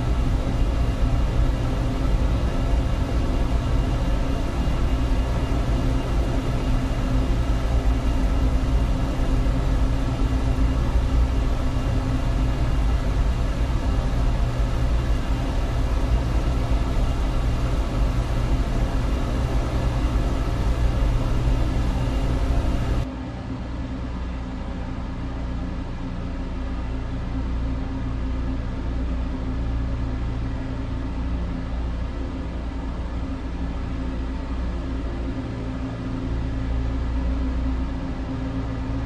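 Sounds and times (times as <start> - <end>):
deep spaceship engine hum: 0.0 - 23.1.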